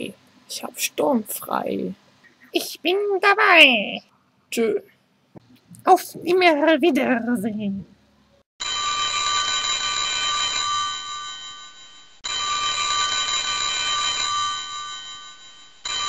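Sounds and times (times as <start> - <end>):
telephone ringing: 8.6 - 16.0.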